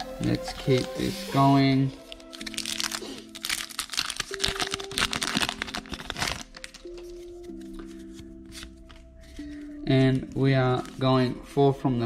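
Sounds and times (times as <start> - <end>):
background music: 0.0 - 12.0
foil wrapper crinkling: 2.0 - 11.1.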